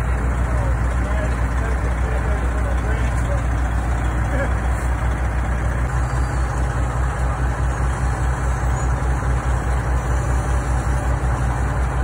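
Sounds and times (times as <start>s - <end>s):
diesel engine throbbing: 0.0s - 12.0s.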